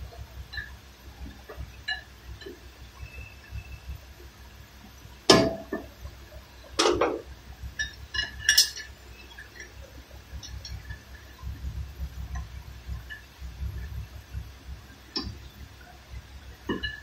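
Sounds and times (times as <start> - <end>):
metal tools clinking: 7.8 - 9.8.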